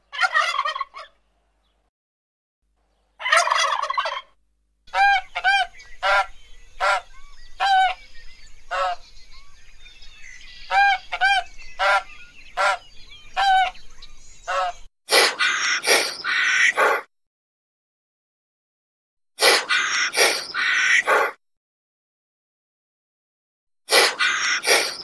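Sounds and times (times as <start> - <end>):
large birds calling: 4.9 - 17.1, 19.4 - 21.4, 23.9 - 25.0.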